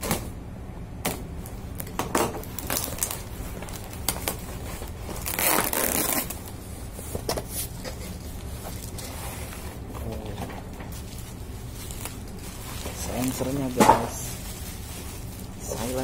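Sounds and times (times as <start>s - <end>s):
steady low hum: 0.0s - 16.0s
cardboard crackling and crinkling: 1.4s - 16.0s
loud cardboard tearing rip: 5.2s - 6.4s.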